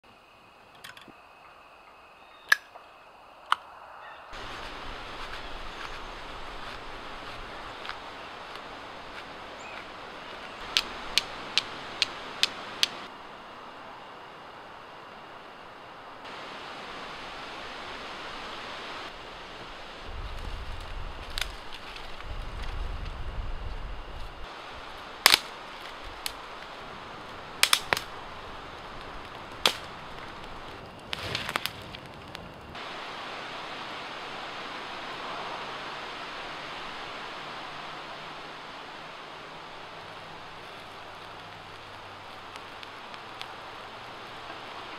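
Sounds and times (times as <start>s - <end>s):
outdoor background hiss: 0.0s - 44.9s
fire striker strikes: 10.6s - 13.0s, 25.2s - 26.4s, 27.6s - 28.2s.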